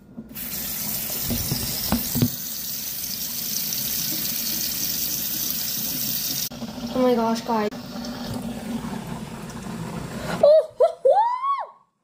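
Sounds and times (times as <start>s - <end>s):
tap running into steel sink: 1.1s - 2.4s.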